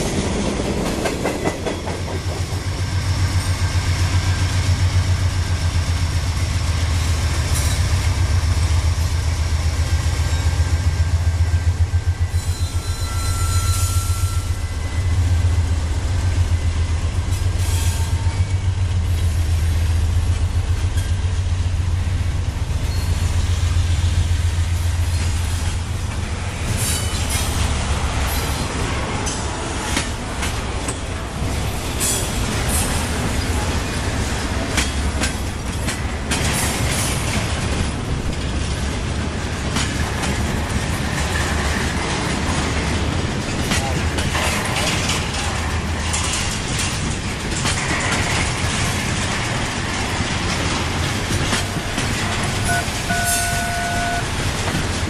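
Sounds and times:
wheels clicking over rail joints: 0.0s - 2.8s, 24.8s - 55.0s
train wheel squeal: 0.0s - 5.7s, 7.4s - 8.1s, 10.2s - 15.6s, 16.4s - 18.9s, 22.8s - 25.8s, 26.7s - 29.5s, 51.5s - 54.3s
diesel locomotives rumbling: 0.0s - 55.0s
freight cars rolling by: 0.0s - 55.0s.

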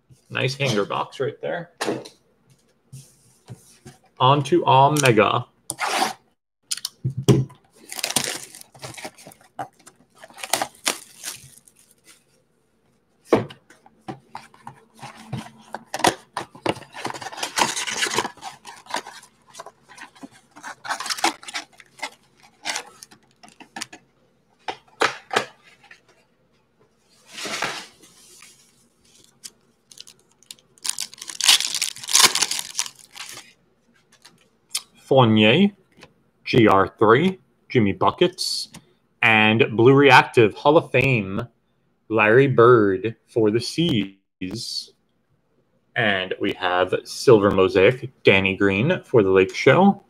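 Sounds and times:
foil pack crinkling and tearing: 7.8s - 9.3s, 10.3s - 12.1s, 29.2s - 33.5s
cardboard box ripping: 30.8s - 33.3s.

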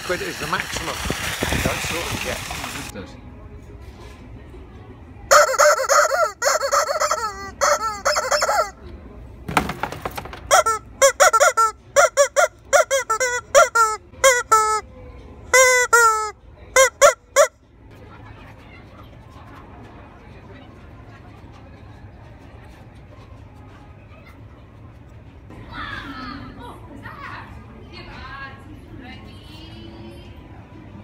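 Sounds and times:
rubber chicken toys squawking: 5.3s - 8.8s, 10.5s - 14.8s, 15.5s - 17.5s.

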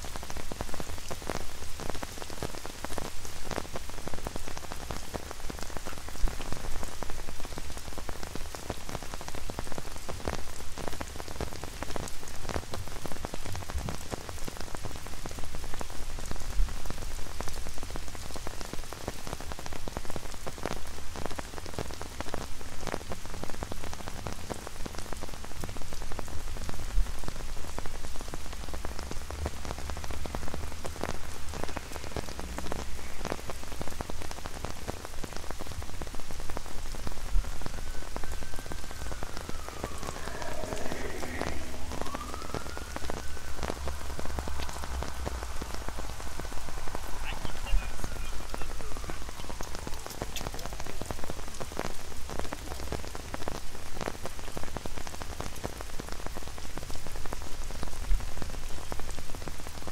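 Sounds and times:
rain on an umbrella: 0.0s - 59.9s
low rumble: 37.1s - 47.7s.

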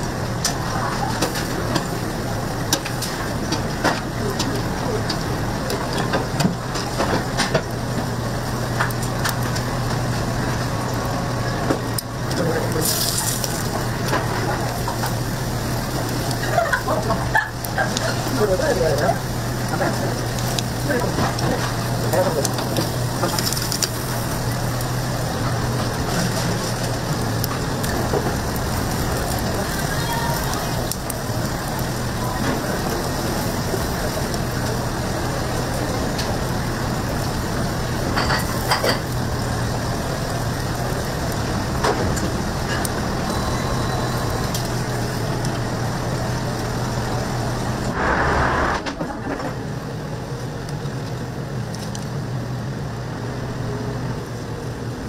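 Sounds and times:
scallops sizzling on a grill: 0.0s - 48.7s.

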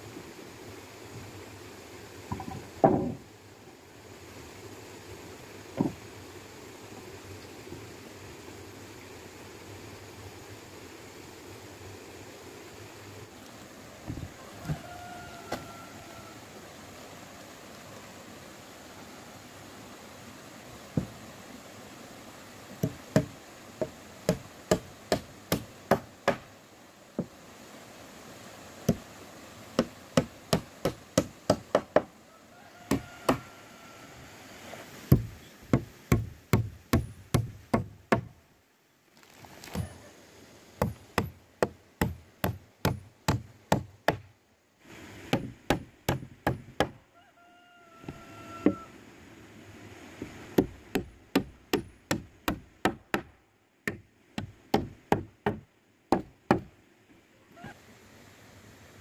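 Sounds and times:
hammer striking nails into wood: 45.3s - 47.0s, 53.9s - 56.7s.

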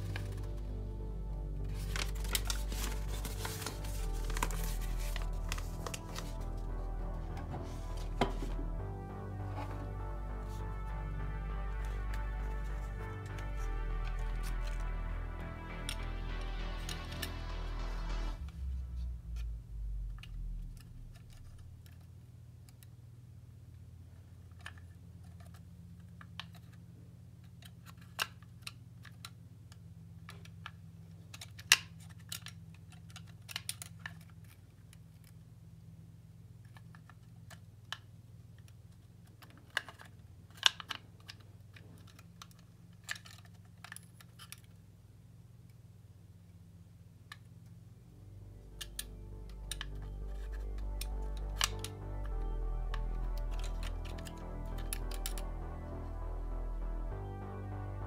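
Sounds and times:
low hum: 0.0s - 24.1s, 46.7s - 58.0s.

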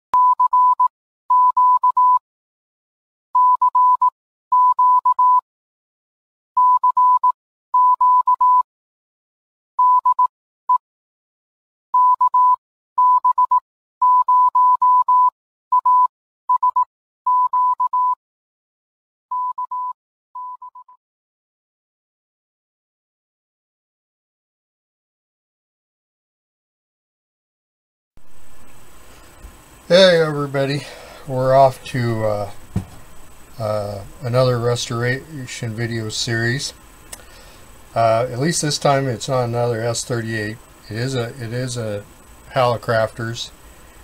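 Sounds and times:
morse code beeps: 0.2s - 2.2s, 3.4s - 5.4s, 6.6s - 8.6s, 9.8s - 10.3s, 12.0s - 18.2s, 19.3s - 21.0s.

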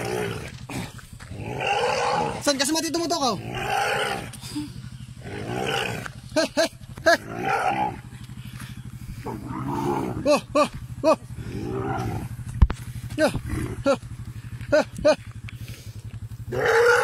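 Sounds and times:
elephant calf calling: 0.0s - 12.5s, 16.4s - 17.0s
motorcycle engine idling: 0.0s - 17.0s.

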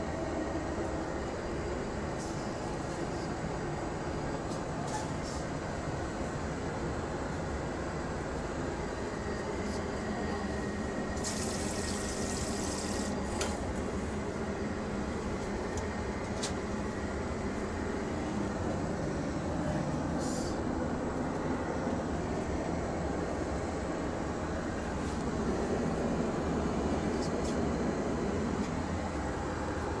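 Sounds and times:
airliner cabin drone: 0.0s - 30.0s
vacuum toilet flushing hiss: 11.2s - 13.2s.

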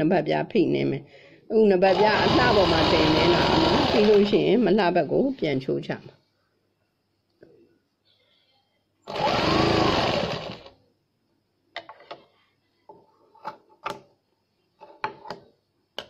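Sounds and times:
sewing machine motor running: 1.9s - 4.4s, 9.1s - 10.7s.

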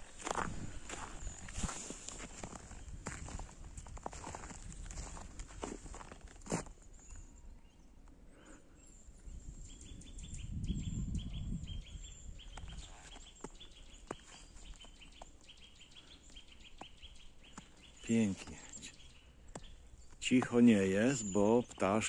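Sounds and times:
small songbirds calling: 0.1s - 22.0s
low rumble on microphone: 9.2s - 12.9s.

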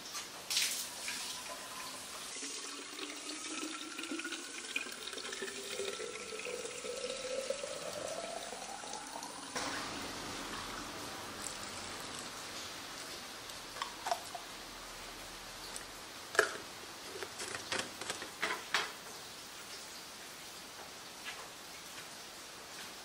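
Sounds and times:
water filling plastic bottle: 0.6s - 14.6s, 15.6s - 18.8s.

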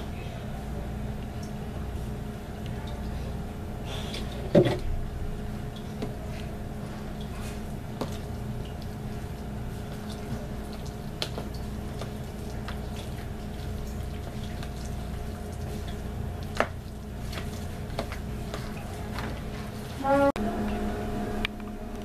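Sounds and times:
wet squishing of mashed potato: 3.9s - 20.0s
low hum: 19.9s - 22.0s.

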